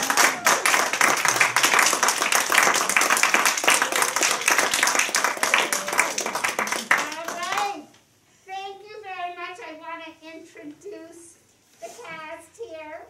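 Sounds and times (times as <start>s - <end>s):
audience applauding: 0.0s - 7.7s
close hands clapping: 0.0s - 7.8s.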